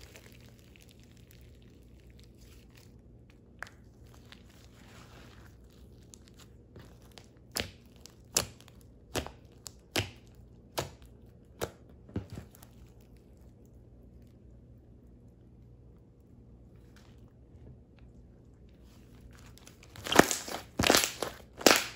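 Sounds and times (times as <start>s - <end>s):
slime stretching: 0.0s - 15.2s, 18.7s - 21.9s
slime popping: 5.5s - 11.8s, 19.6s - 21.9s.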